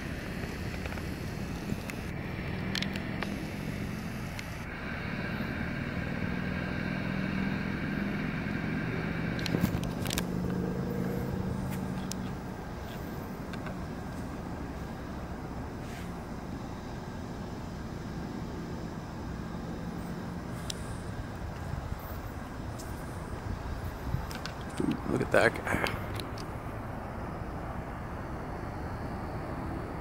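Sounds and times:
vehicle engine passing: 0:00.0 - 0:30.0
faint clicks: 0:23.8 - 0:25.0.

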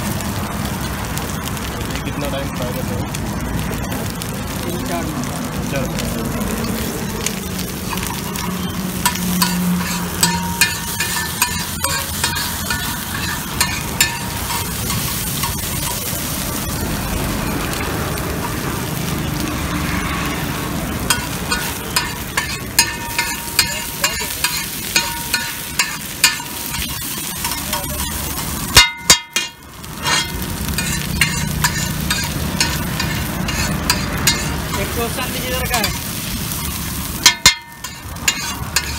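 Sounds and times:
chicken sizzling on a griddle: 0:00.0 - 0:38.9
metal spatula scraping griddle: 0:06.5 - 0:16.8, 0:21.0 - 0:38.9.

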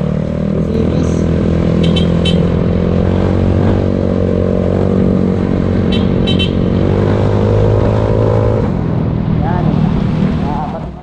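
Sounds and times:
scooter engine running: 0:00.0 - 0:07.0.

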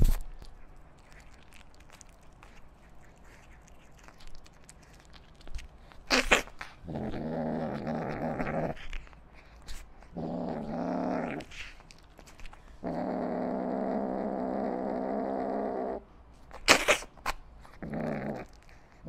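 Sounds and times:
kitten chewing and licking: 0:00.0 - 0:12.9, 0:16.2 - 0:19.0
kitten growling low: 0:06.1 - 0:09.0, 0:10.1 - 0:11.7, 0:12.8 - 0:16.0, 0:17.8 - 0:18.6.

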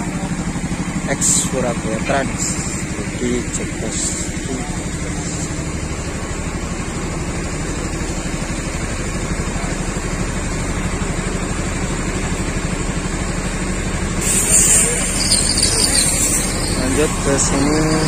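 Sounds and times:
bus diesel engine idling: 0:00.0 - 0:18.0.

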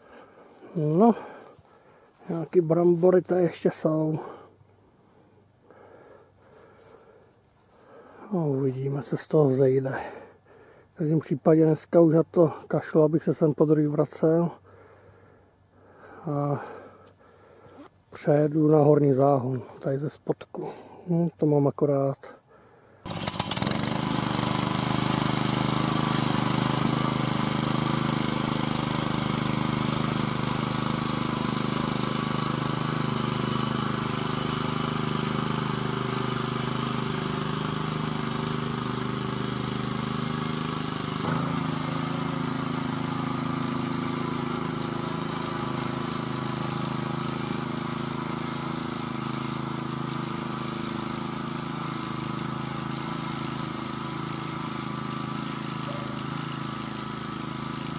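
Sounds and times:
walking tractor engine running: 0:00.0 - 0:04.4, 0:23.0 - 0:57.9.

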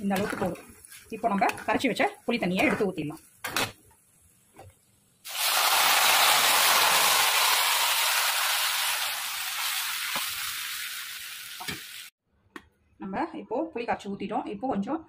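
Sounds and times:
liquid sizzling in hot oil: 0:00.0 - 0:03.8, 0:05.2 - 0:12.1.

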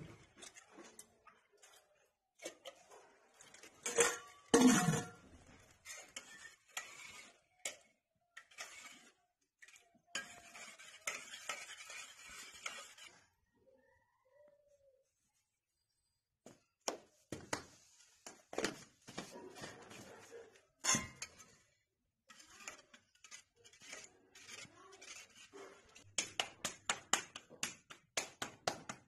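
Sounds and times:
spoon scraping in steel pot: 0:00.4 - 0:13.3, 0:20.8 - 0:27.2
steel utensils clinking: 0:03.8 - 0:05.2.

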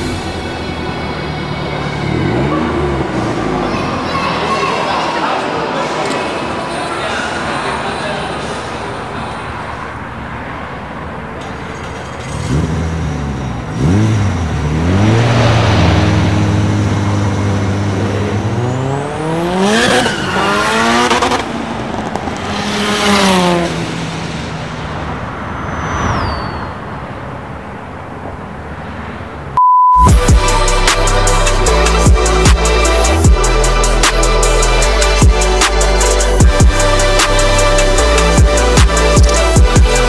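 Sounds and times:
car engine revving and passing: 0:00.0 - 0:06.7, 0:07.3 - 0:40.0
steady test-tone beep: 0:29.6 - 0:30.1.

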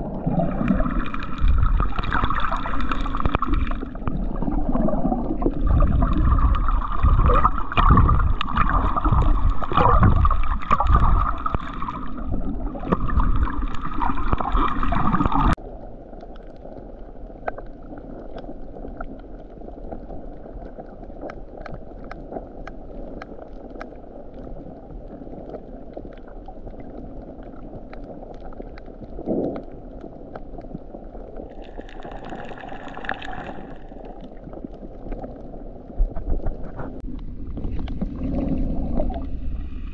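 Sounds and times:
underwater sloshing and gurgling: 0:00.0 - 0:39.9
underwater hiss: 0:31.6 - 0:34.2, 0:38.2 - 0:39.9.

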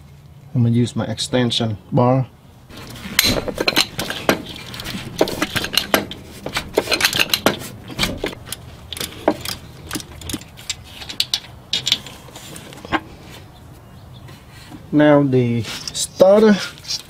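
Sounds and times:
metal tools clinking: 0:02.7 - 0:13.0
socket ratchet clicking: 0:03.2 - 0:12.0.

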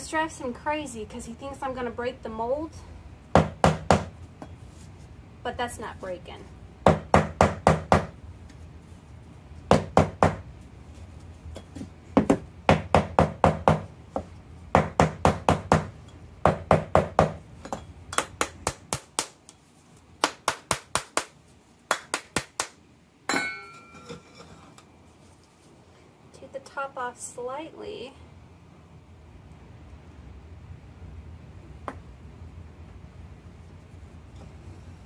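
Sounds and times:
ringing scrape: 0:23.4 - 0:24.7.

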